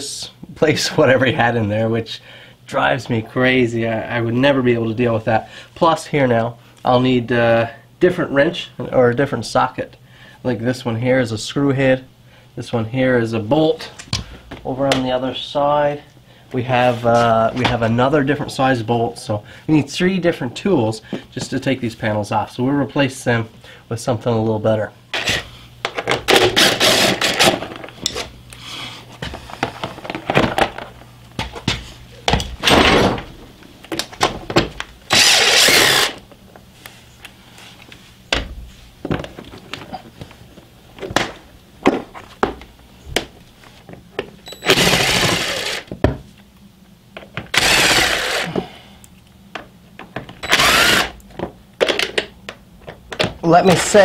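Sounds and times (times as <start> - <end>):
impact driver running: 35.1 - 36.2, 44.6 - 45.9, 47.5 - 48.6, 50.4 - 51.2.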